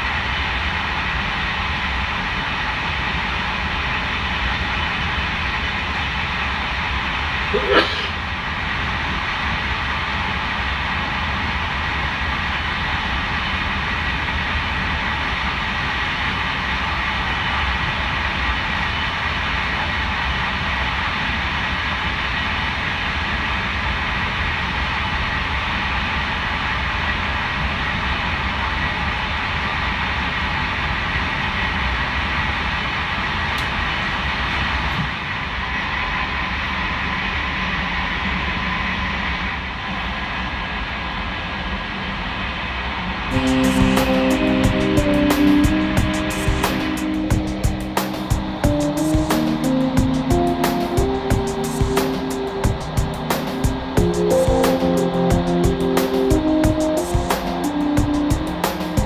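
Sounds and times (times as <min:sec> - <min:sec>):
thin steady whine: 0:43.3 - 0:59.0.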